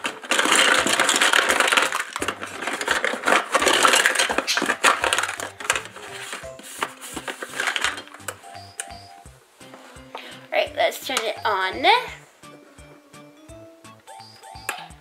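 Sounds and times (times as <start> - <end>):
plastic toy rustling and clattering: 0.0 - 8.5.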